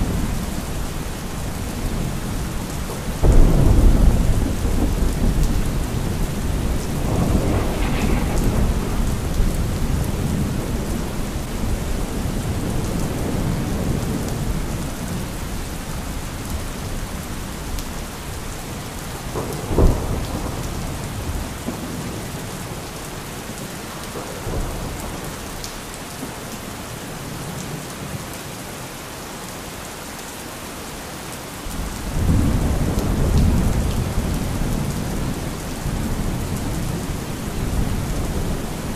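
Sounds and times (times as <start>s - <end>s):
rolling thunder: 0.0s - 18.5s, 19.1s - 22.8s, 31.7s - 38.9s
steady rain falling: 0.0s - 38.9s
sharp thunderclap: 3.2s - 14.7s, 19.3s - 22.0s.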